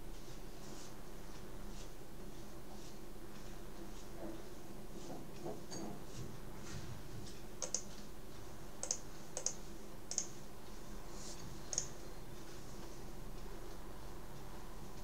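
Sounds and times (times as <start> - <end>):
steady low hum: 0.0 - 15.0
computer clicks: 7.6 - 8.0, 8.8 - 10.4, 11.7 - 12.0.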